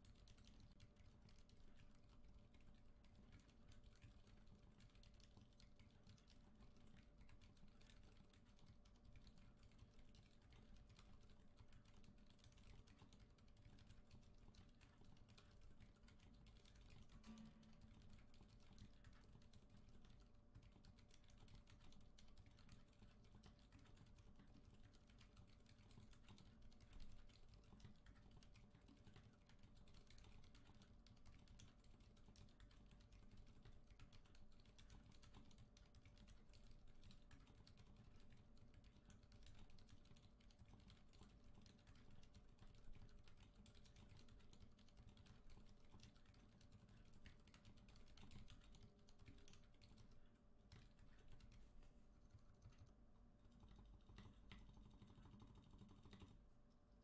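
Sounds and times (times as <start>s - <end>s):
soft mechanical keyboard typing: 0.0s - 57.0s.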